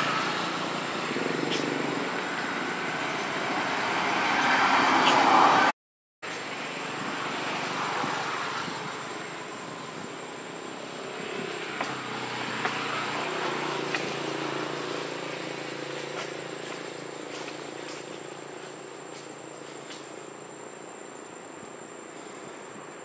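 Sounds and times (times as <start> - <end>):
outdoor background hiss: 6.2 - 23.0.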